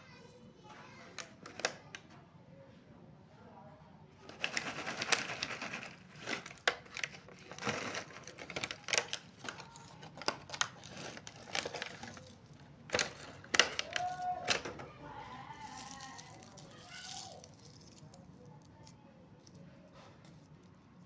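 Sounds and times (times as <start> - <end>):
plastic box crackling and clicking: 1.1 - 2.0, 4.3 - 14.8
wrapped candies rattling: 4.2 - 21.0.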